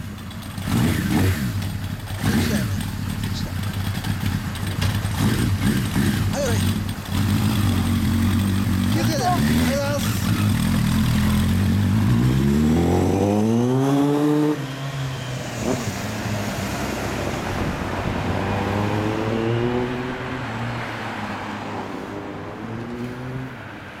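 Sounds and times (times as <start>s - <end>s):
motorcycle engine revving: 0.0s - 20.5s.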